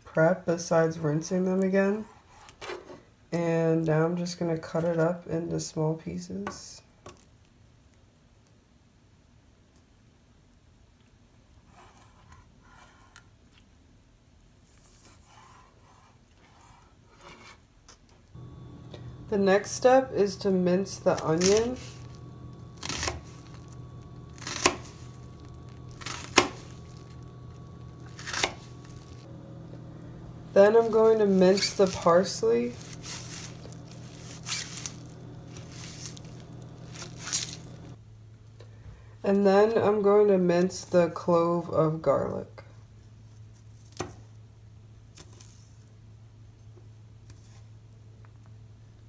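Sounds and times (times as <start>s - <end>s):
faint low hum: 18.4s - 41.6s
knife cutting onion: 19.0s - 29.2s.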